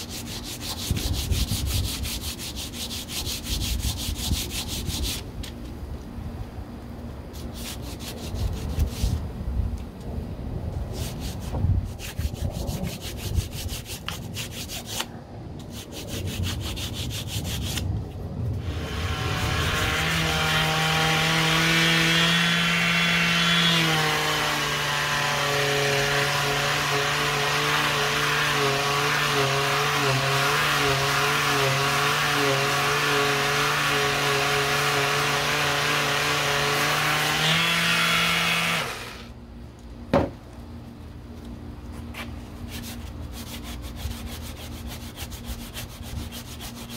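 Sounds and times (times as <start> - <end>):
sanding stick on body filler: 0.0 - 5.2, 7.4 - 9.2, 10.9 - 17.8, 42.2 - 46.9
detail sander whining: 18.6 - 39.4
knock: 40.1 - 40.4.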